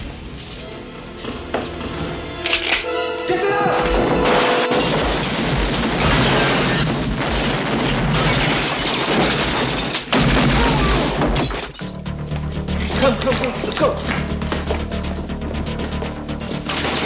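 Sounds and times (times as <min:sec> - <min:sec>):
music: 0:00.0 - 0:06.8, 0:10.5 - 0:17.0
glass shattering: 0:04.0 - 0:12.1.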